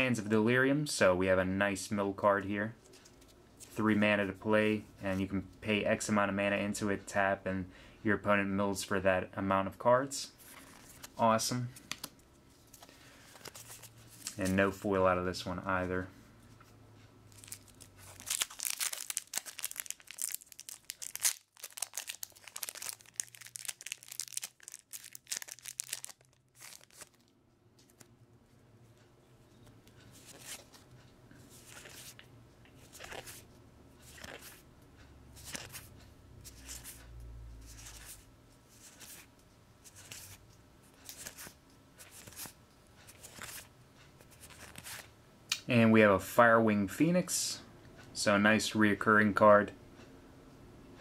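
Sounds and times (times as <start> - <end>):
foil wrapper tearing and crinkling: 17.4 - 27.3
cards sliding swishes: 31.5 - 32.2, 32.8 - 34.6, 35.4 - 37.0, 37.6 - 40.4.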